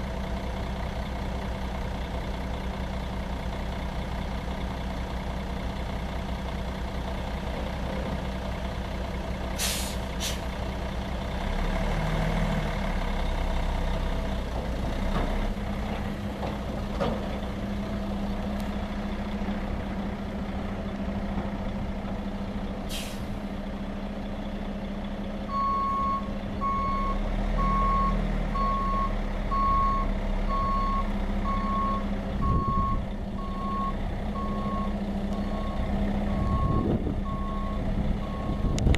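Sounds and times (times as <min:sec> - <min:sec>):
heavy diesel truck engine running: 0:00.0 - 0:38.9
air brake hiss: 0:09.6 - 0:10.5, 0:22.9 - 0:23.4.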